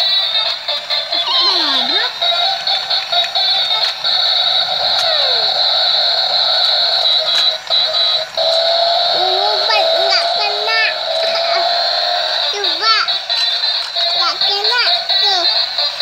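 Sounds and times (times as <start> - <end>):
high whine: 0.0 - 15.4
tinny electronic toy tune: 0.0 - 16.0.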